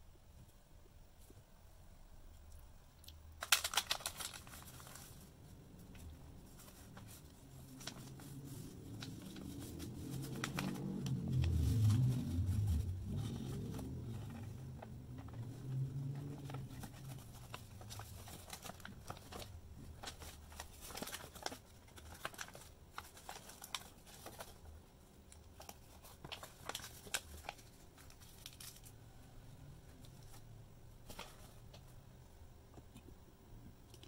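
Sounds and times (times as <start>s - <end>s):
paper wrapping crinkling: 3.3s - 29.0s, 30.0s - 32.0s.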